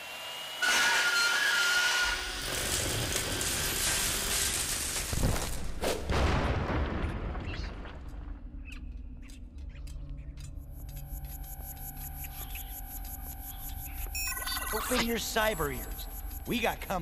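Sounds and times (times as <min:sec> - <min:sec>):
drill grinding through metal: 0:00.0 - 0:04.9.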